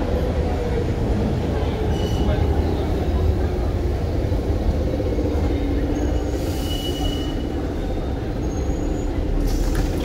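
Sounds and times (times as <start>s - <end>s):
metro train wheels rumbling: 0.0s - 10.0s
wheel or brake squeals: 6.0s - 7.6s, 8.4s - 9.2s.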